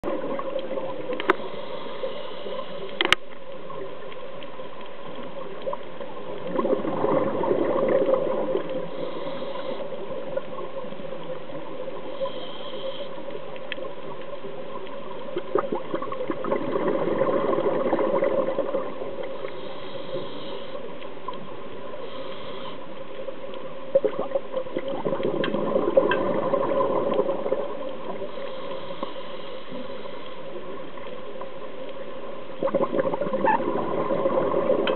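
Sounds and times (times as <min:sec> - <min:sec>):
underwater hiss and hum: 0:00.0 - 0:34.9
scuba exhale bubbling: 0:06.2 - 0:10.8, 0:15.2 - 0:20.9, 0:23.9 - 0:30.8, 0:32.6 - 0:34.9.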